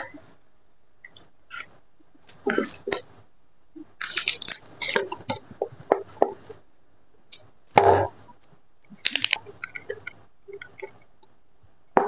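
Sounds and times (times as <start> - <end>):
plastic crunch: 4.0 - 6.1, 8.9 - 10.9.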